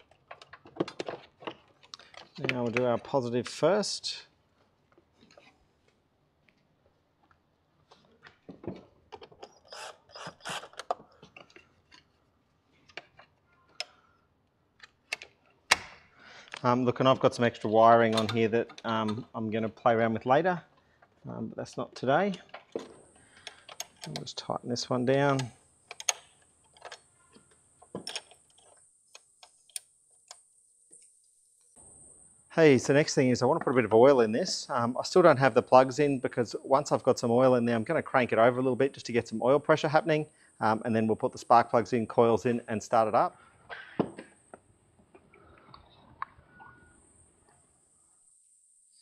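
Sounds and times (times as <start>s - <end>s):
clicks and knocks of handling: 0.0s - 3.6s, 4.9s - 9.7s, 10.6s - 12.2s, 12.8s - 14.1s, 18.0s - 19.2s, 20.7s - 24.4s, 25.1s - 30.4s
cordless power tool whirring: 9.6s - 10.9s.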